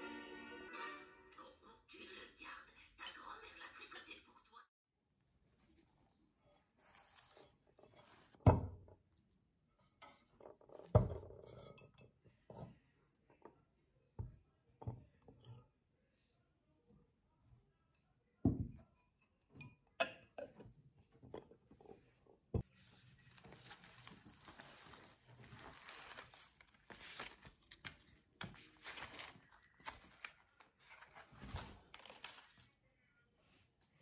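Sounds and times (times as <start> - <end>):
ceramic bowls clinking: 18.9 - 20.7
bag and placemats rustling: 22.7 - 27.7, 28.5 - 32.7.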